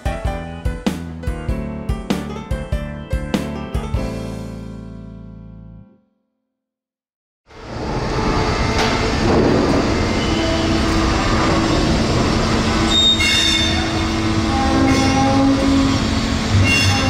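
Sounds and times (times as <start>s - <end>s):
freight wagons rumbling: 7.6s - 17.0s
steel wheels squealing on rails: 7.8s - 17.0s.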